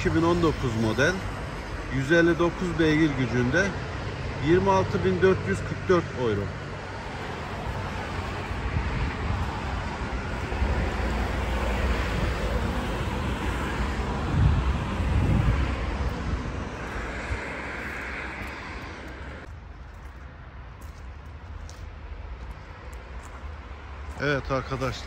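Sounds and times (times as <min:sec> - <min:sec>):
distant engine noise: 0:00.0 - 0:25.0
wind buffeting microphone: 0:07.4 - 0:20.1.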